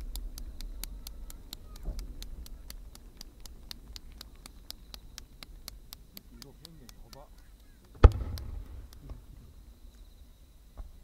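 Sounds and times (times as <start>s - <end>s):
ticking sharp clicks: 0.0s - 9.2s
fireworks burst rumble: 7.9s - 9.7s.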